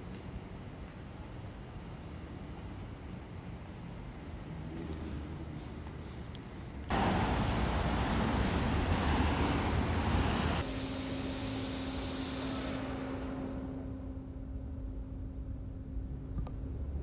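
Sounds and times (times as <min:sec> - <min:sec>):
street traffic noise: 0:00.0 - 0:10.8
steady low hum: 0:06.9 - 0:17.0.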